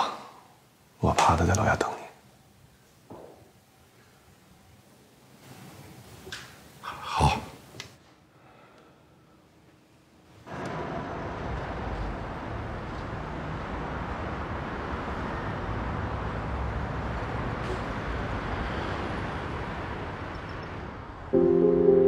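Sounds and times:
city street traffic hum: 10.5s - 21.3s
saxophone playing: 21.4s - 22.0s.

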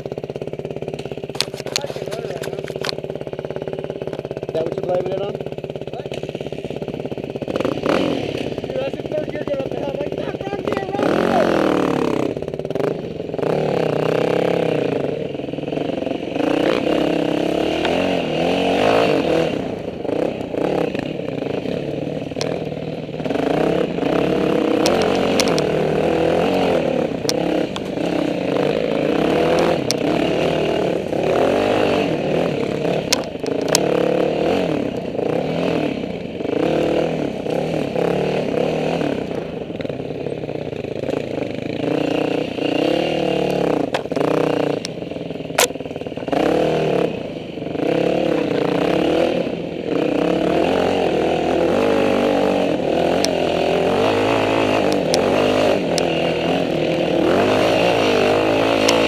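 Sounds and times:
sharp clicks and clatter: 0.0s - 11.1s, 21.8s - 22.8s, 23.6s - 28.8s, 32.8s - 34.1s, 43.4s - 46.4s, 53.1s - 53.4s, 54.1s - 59.0s
dirt bike engine revving: 0.0s - 59.0s.

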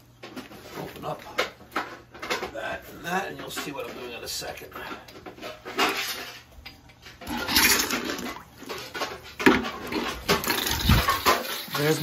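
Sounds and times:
water splashing into a bucket: 7.2s - 12.0s.

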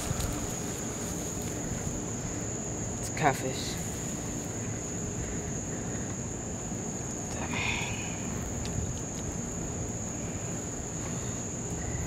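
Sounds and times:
handling noise rumbling: 0.0s - 2.4s
night insect chorus: 0.0s - 12.0s.

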